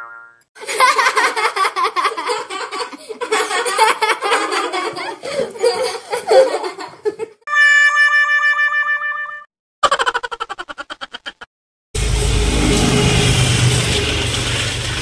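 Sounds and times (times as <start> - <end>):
person laughing high-pitched: 9.8 - 11.5
steady electronic tone: 12.0 - 14.3.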